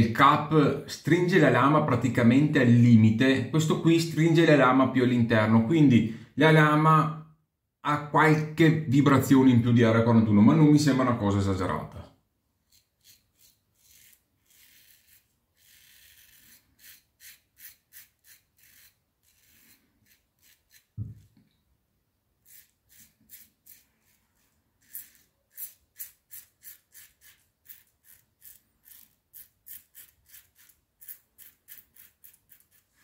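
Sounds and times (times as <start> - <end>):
razor scraping stubble: 12.6 - 21.3, 22.4 - 33.0
brief low thump: 21.0 - 21.2.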